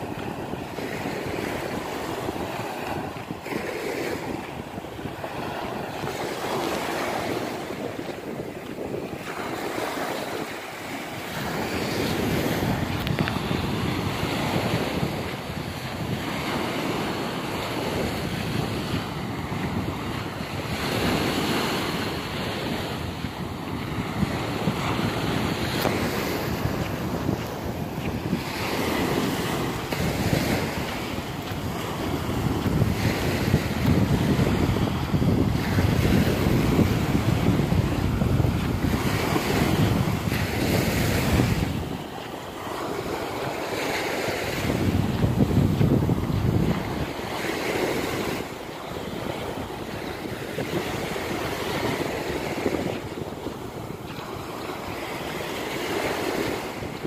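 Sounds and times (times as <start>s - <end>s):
sea waves breaking on beach: 0.0s - 57.0s
wind buffeting microphone: 0.0s - 57.0s.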